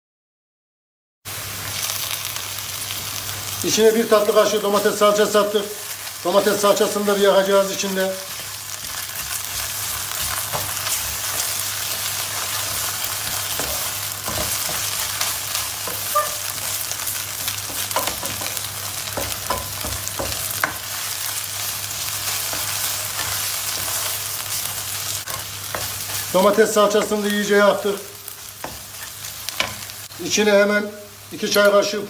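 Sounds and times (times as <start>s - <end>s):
onions sizzling in oil: 1.3s - 32.0s
wooden spoon stirring and scraping: 6.5s - 30.0s
spoon knocking against pan: 17.6s - 20.8s.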